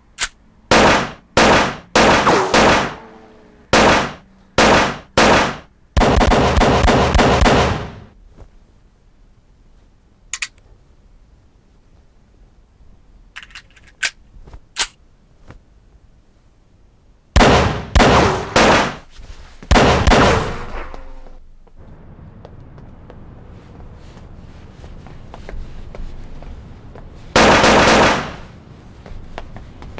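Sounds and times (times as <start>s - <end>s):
pistol shots: 0.2s - 3.0s, 3.8s - 8.0s, 17.4s - 19.0s, 19.7s - 21.0s, 27.4s - 28.4s.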